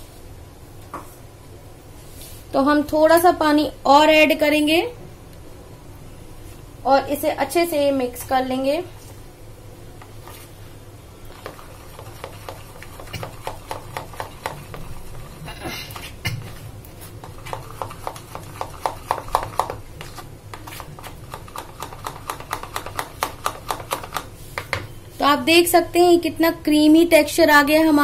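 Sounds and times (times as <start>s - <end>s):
wet batter squelching: 11.2s - 24.3s.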